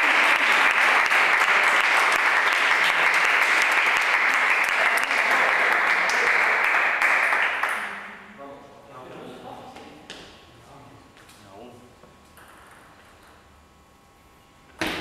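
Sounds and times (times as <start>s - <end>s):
spectators clapping: 0.0s - 8.2s.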